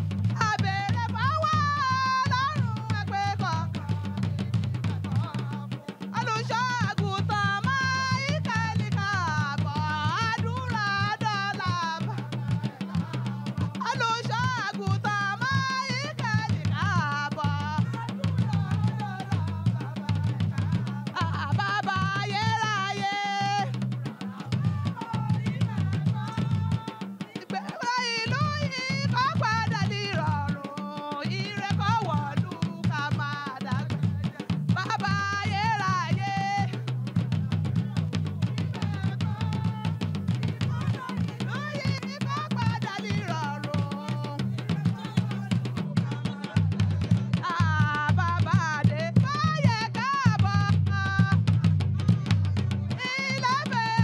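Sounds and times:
drum ensemble fast rhythm: 0.0 - 54.0
group singing: 0.4 - 51.3, 51.9 - 54.0.

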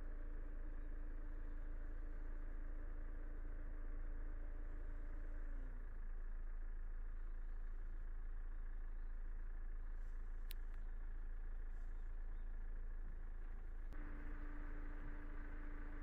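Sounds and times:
car engine and road rumble: 0.0 - 16.0
steady hum: 13.9 - 16.0.

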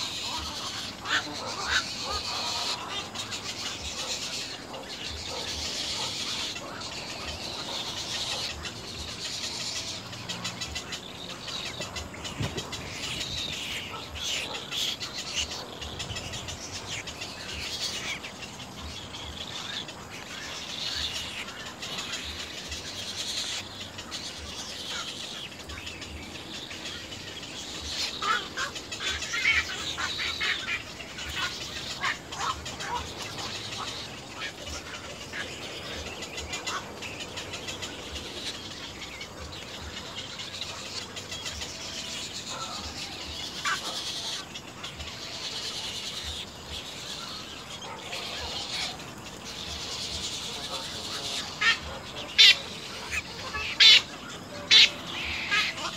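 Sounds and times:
egret chicks begging calls: 0.0 - 55.9.

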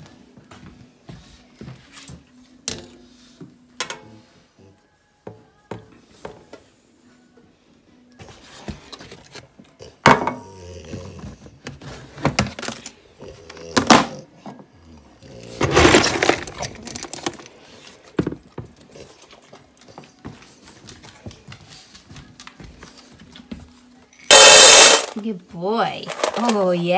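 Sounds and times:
steel dog bowls clattering: 15.5 - 17.5
dry kibble rattling in plastic tub: 15.6 - 17.7, 26.0 - 26.9.

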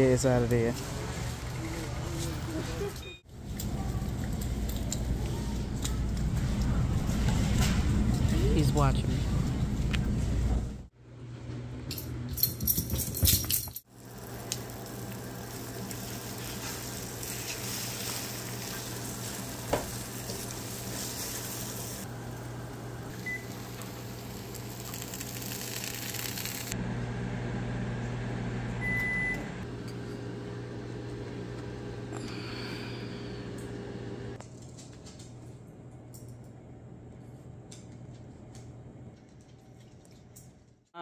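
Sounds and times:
eggs sizzling in a frying pan: 13.9 - 26.8.

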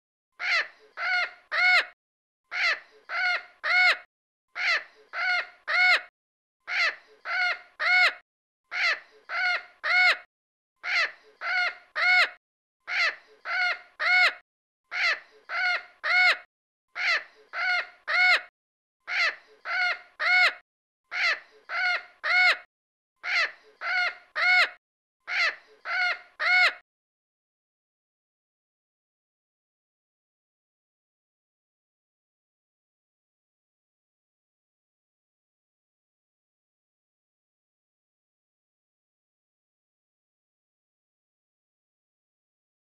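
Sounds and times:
crow cawing: 0.4 - 6.1.

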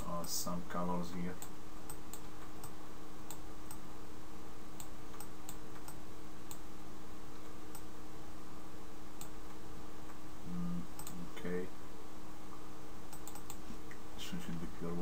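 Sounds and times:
steady background hum: 0.0 - 15.0
computer mouse clicking: 4.8 - 6.6, 11.0 - 11.2, 13.1 - 13.6.

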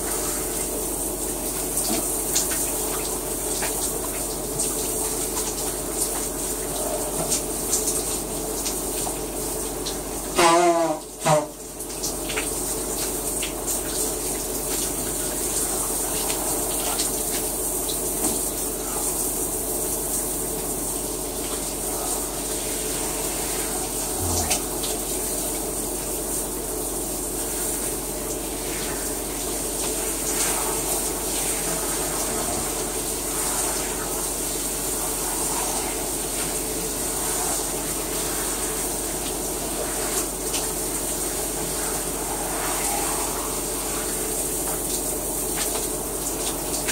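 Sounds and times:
shower water spraying: 0.0 - 46.9.

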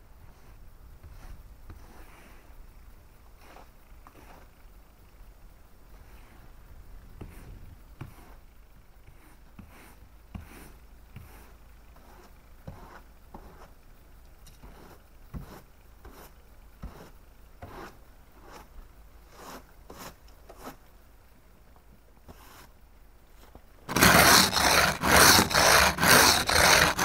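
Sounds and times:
snow and ice scraped off car: 23.9 - 27.0.

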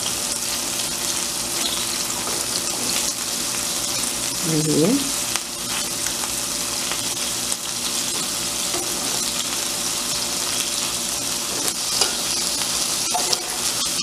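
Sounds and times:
patties sizzling in a frying pan: 0.0 - 14.0
metal spatula tapping and scraping pan: 11.6 - 12.4, 13.0 - 13.8.

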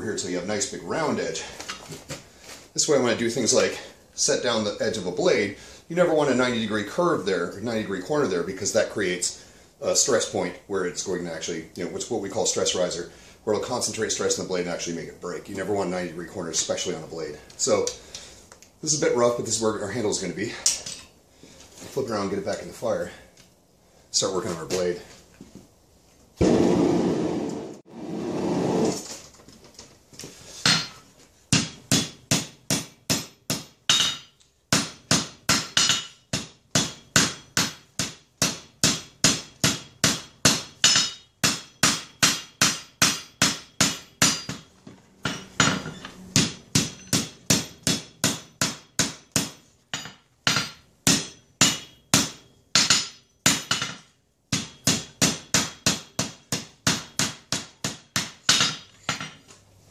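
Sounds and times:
hammer striking steel on anvil: 30.6 - 59.4.

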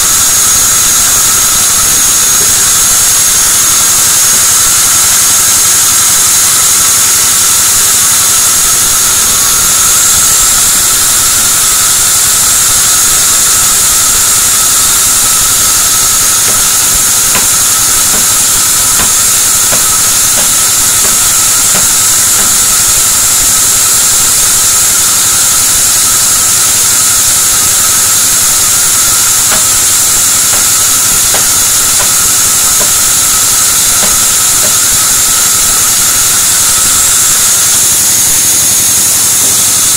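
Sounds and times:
band saw running: 0.0 - 39.9
hatchet chopping wood: 16.2 - 22.8, 29.0 - 35.0.

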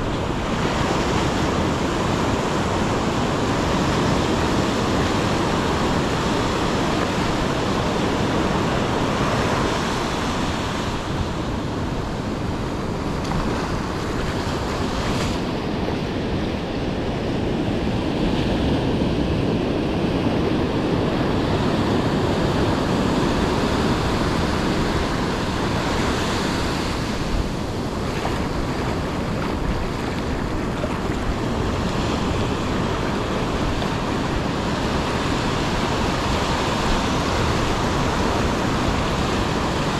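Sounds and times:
surf breaking on a beach: 0.0 - 39.9
wind on the microphone: 0.0 - 39.9.

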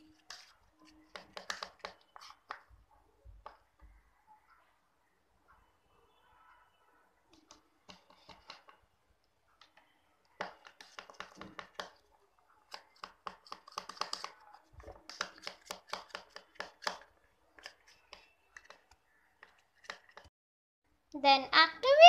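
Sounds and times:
spoon scraping plastic bowl: 0.0 - 2.7, 7.4 - 8.8, 12.7 - 20.3.

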